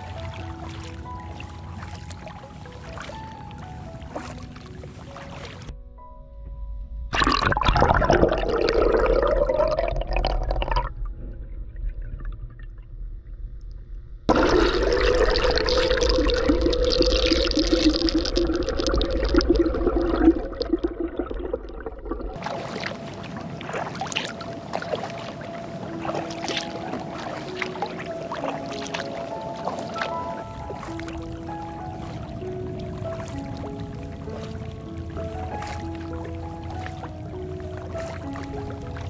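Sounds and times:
kayak paddle splashing in water: 0:00.0 - 0:05.7, 0:22.3 - 0:39.0
low wind rumble: 0:00.0 - 0:39.0.

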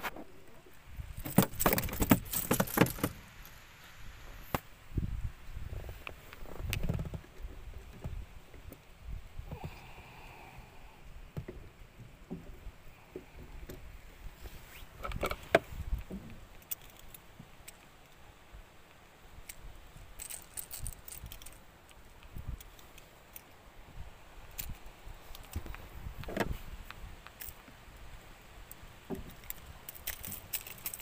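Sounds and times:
fishing tackle clicking and knocking: 0:01.2 - 0:03.2, 0:15.0 - 0:18.2, 0:20.2 - 0:23.6, 0:28.7 - 0:31.0.

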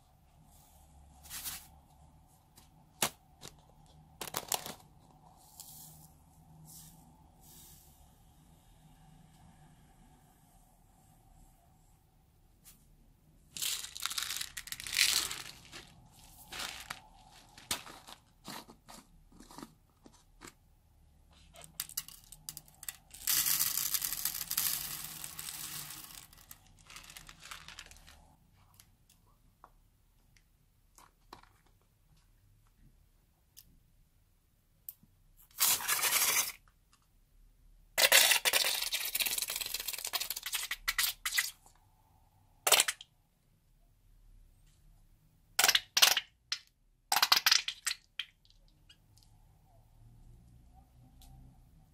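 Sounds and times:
gravel pouring into glass dish: 0:13.6 - 0:18.6, 0:21.9 - 0:28.3.

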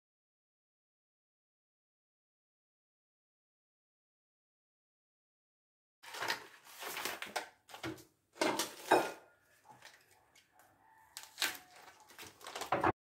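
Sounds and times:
plastic wrapper rustling: 0:06.0 - 0:08.9, 0:09.6 - 0:13.0.

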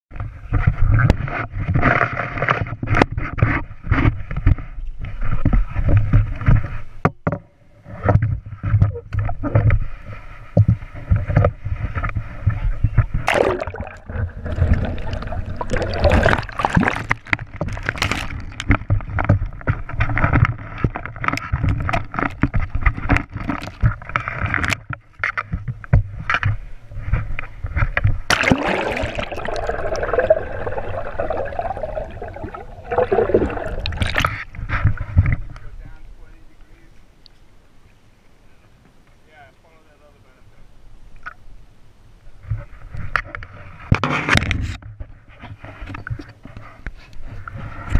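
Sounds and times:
water rushing and splashing: 0:13.2 - 0:18.7, 0:28.3 - 0:34.6.

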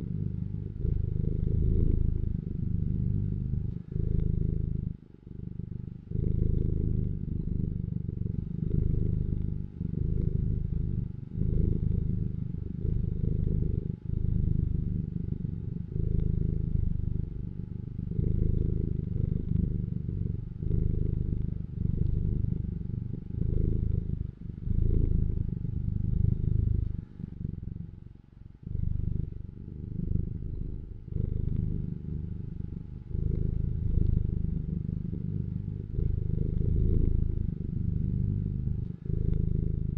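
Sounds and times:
cat purring: 0:00.0 - 0:39.9.

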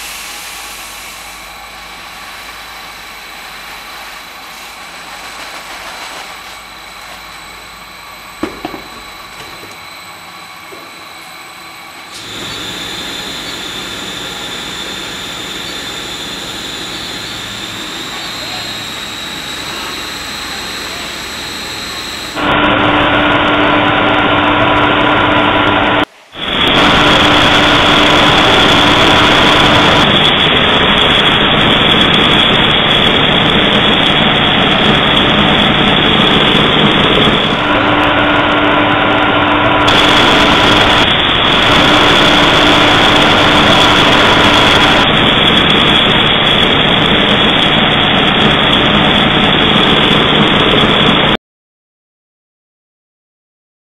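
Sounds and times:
steady hum tones: 0:06.8 - 0:51.2
loud mechanical rush: 0:12.1 - 0:51.4.

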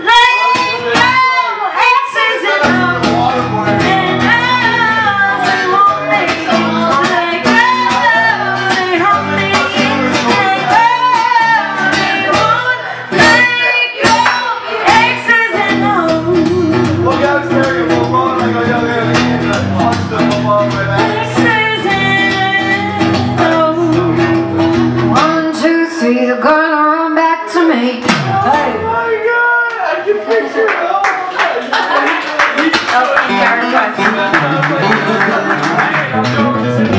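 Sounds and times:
woman singing: 0:00.0 - 0:17.3, 0:20.9 - 0:29.1
strummed acoustic guitar: 0:02.0 - 0:25.7, 0:33.3 - 0:36.9
band playing pop-rock song: 0:02.5 - 0:25.7, 0:33.0 - 0:36.9.

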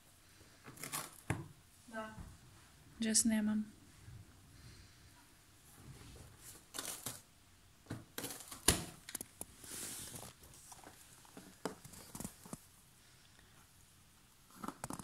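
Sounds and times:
cat tearing cardboard: 0:00.7 - 0:01.3.

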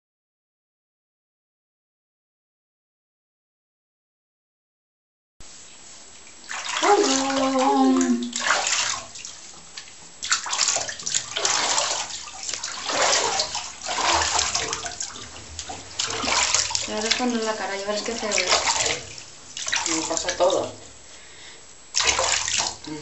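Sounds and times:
bathwater sloshing and splashing: 0:05.6 - 0:23.0.

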